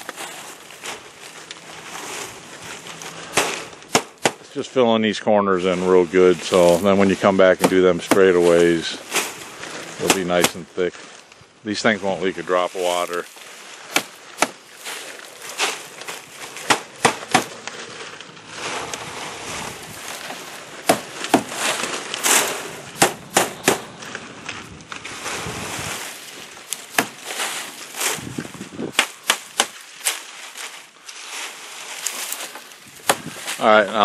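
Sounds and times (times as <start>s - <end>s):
dry palm leaves rustling: 0.0s - 34.0s
hammer blows on nails: 22.2s - 24.0s.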